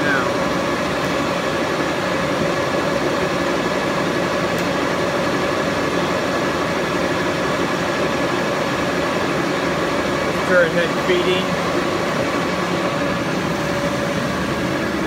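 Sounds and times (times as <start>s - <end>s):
lathe machine hum: 0.0s - 15.0s.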